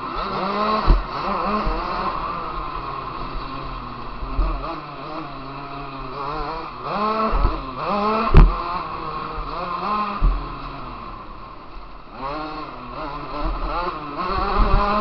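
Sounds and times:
motocross bike engine revving: 0:00.0 - 0:15.0
bike thumping over dirt: 0:00.6 - 0:02.0, 0:07.3 - 0:08.8.

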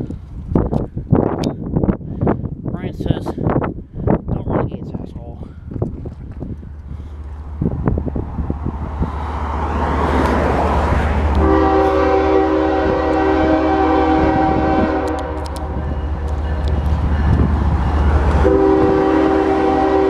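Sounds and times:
low train rumble: 0:00.0 - 0:20.0
locomotive horn chord: 0:11.3 - 0:16.3, 0:18.2 - 0:20.0.

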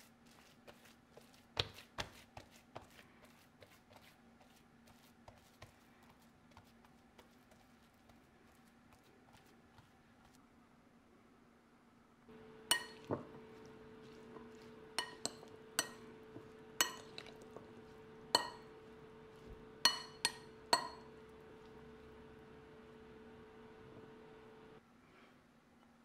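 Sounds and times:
faint steady hum: 0:05.6 - 0:26.0
glass dishware clinking: 0:12.7 - 0:13.4, 0:15.0 - 0:16.1, 0:16.8 - 0:17.6, 0:18.4 - 0:18.7, 0:19.9 - 0:21.2.

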